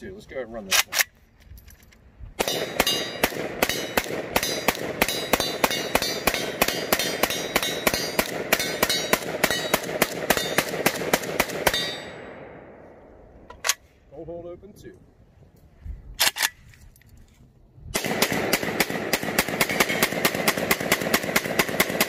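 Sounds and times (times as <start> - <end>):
rifle shots: 2.4 - 12.8, 17.9 - 22.0.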